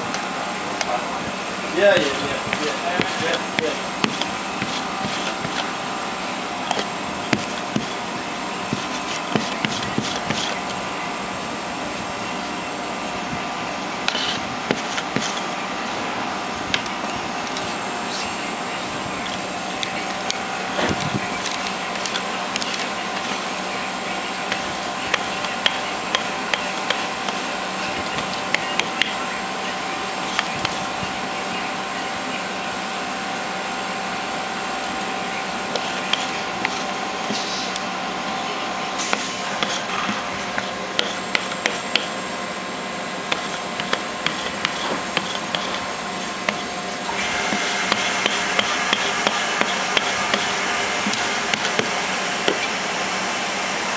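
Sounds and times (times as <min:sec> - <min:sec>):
machine-like hum and hiss: 0:00.0 - 0:53.9
lint roller crackling on fabric: 0:01.2 - 0:05.8.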